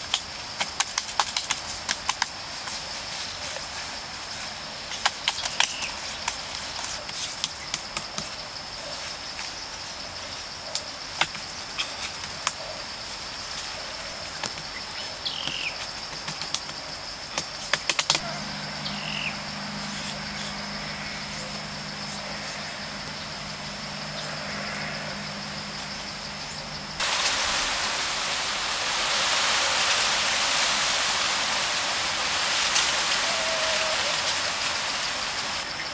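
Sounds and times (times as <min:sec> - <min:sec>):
high-pitched insect drone: 0:18.1 - 0:27.7
low steady hum: 0:18.2 - 0:28.6.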